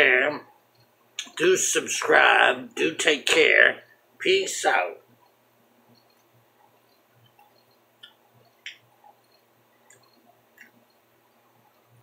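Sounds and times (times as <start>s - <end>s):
faint clicks: 5.2s - 11.0s.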